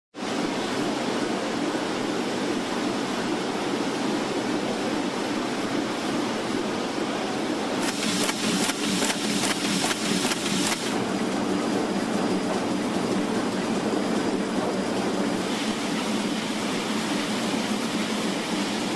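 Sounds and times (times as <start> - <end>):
printing machinery running: 0.2 - 18.9
sharp clacks: 7.8 - 11.0.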